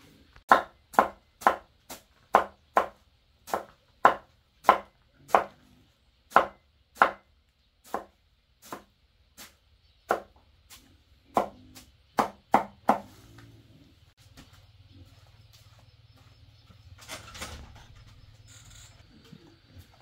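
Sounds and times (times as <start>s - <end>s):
blade chopping on wooden block: 0.5s - 5.6s, 6.3s - 7.3s, 11.3s - 13.1s.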